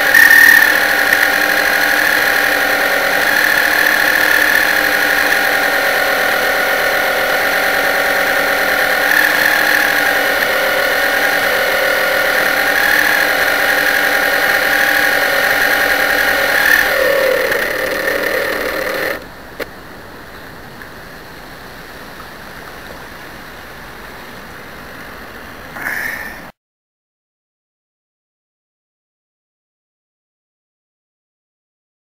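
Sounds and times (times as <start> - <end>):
model boat motor whine: 0.0 - 19.3.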